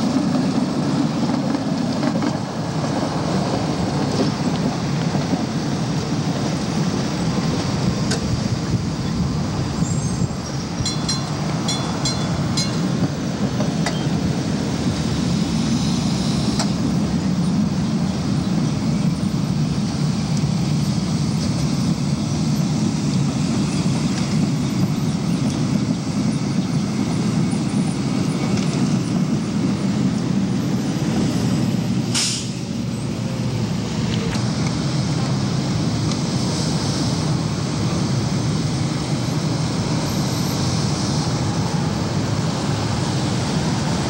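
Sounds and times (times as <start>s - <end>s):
streetcars rumbling past: 0.0s - 44.0s
short hiss: 32.1s - 32.6s.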